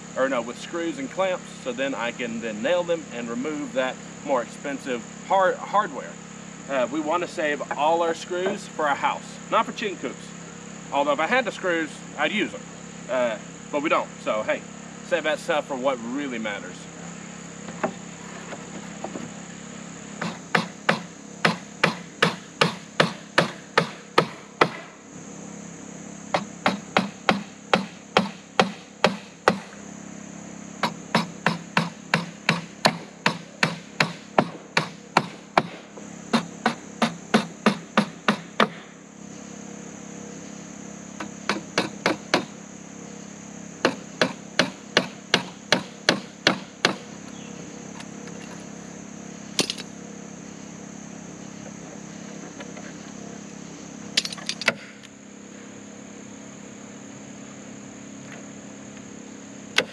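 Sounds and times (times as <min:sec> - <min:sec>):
insects buzzing: 0:00.0 - 0:59.9
hammer driving nails into wood: 0:20.2 - 0:24.9, 0:26.4 - 0:29.6.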